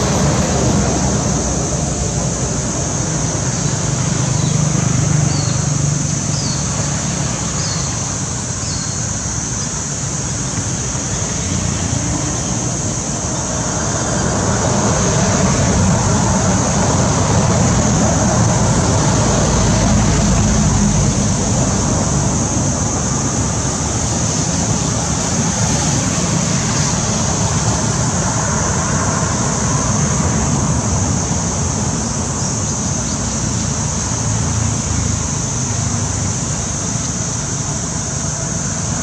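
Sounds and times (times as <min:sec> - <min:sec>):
constant high hiss: 0:00.0 - 0:39.0
low traffic rumble: 0:00.0 - 0:39.0.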